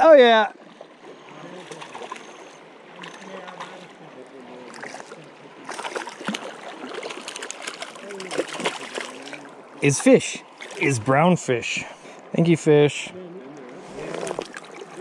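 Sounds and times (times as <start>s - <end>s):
fish splashing in water: 1.4s - 4.0s, 4.6s - 9.8s, 10.4s - 11.0s, 14.0s - 15.0s
creek burbling over gravel: 1.5s - 11.2s, 13.9s - 15.0s.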